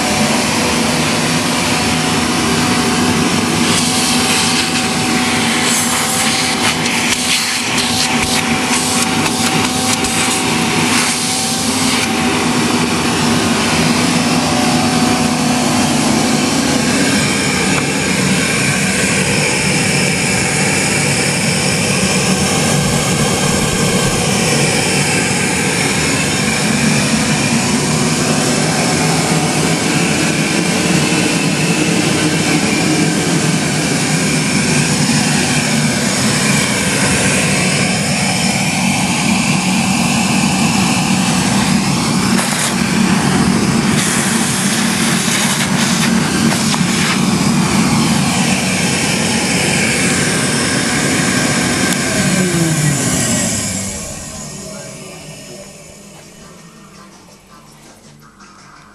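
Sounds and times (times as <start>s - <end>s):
air rushing through hose: 0.0s - 56.1s
vacuum cleaner motor humming: 0.0s - 58.4s.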